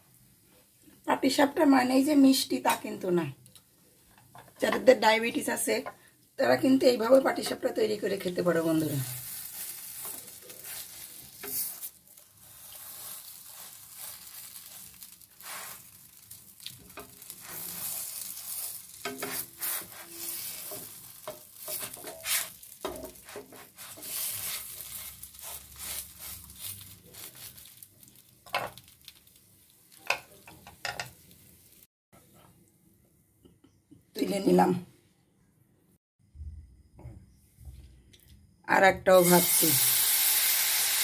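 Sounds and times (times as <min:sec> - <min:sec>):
crepe sizzling in a frying pan: 0:06.8 - 0:31.9, 0:39.2 - 0:41.0
spatula scraping and tapping pan: 0:09.7 - 0:11.9, 0:16.6 - 0:27.6, 0:28.5 - 0:28.9, 0:29.9 - 0:31.4.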